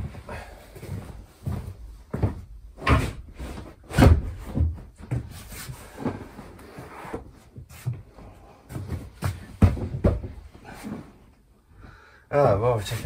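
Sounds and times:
cushions shuffling: 0.0 - 11.4
cushions thumping on wooden bench: 8.8 - 10.4.

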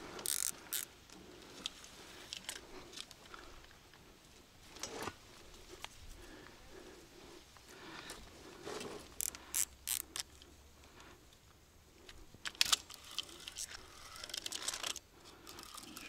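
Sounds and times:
fishing reel clicking and ratcheting: 0.2 - 0.9, 9.2 - 10.4, 12.4 - 16.0.

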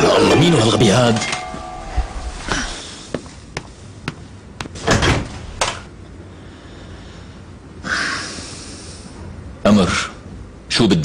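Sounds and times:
heavy bangs: 0.0 - 3.2.

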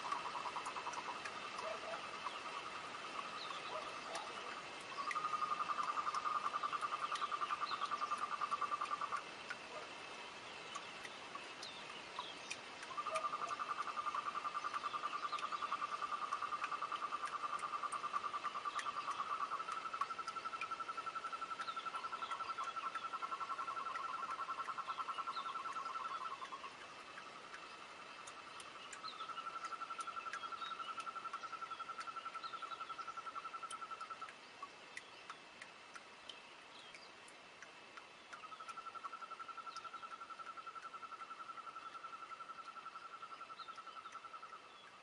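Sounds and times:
short chirps and ticks: 0.0 - 45.0.

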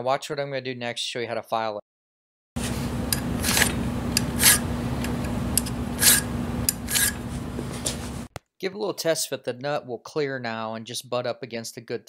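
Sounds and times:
steady low hum: 2.6 - 8.3
hand file rasping on metal: 3.2 - 4.7, 6.0 - 7.2.

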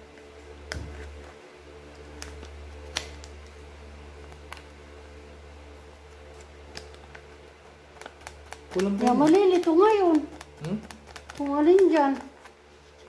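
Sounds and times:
steady low hum: 0.0 - 13.0
plastic sachet clicking against glass jar: 6.7 - 7.3, 7.9 - 12.6.

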